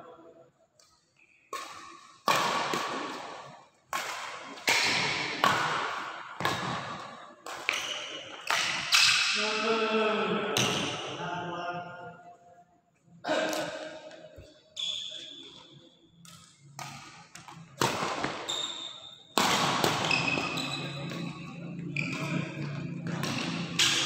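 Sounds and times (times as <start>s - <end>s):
rackets hitting shuttlecock: 1.5s - 9.4s, 16.2s - 24.0s.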